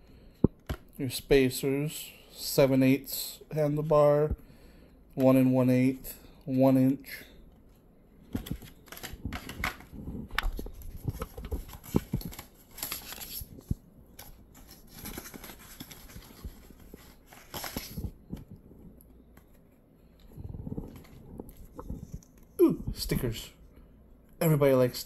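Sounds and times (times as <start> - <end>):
paper sliding rustles: 10.5 - 18.2
cardboard box rustling: 14.2 - 18.4.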